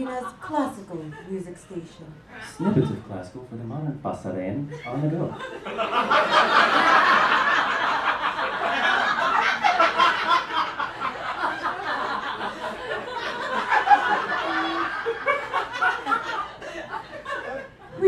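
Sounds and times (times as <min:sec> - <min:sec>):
audience laughing: 0:00.0 - 0:03.1, 0:04.8 - 0:18.0.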